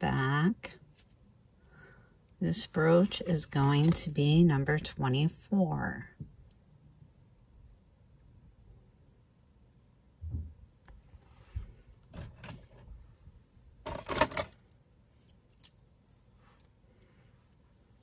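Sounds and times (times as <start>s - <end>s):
metal jewelry clinking: 13.9s - 17.6s.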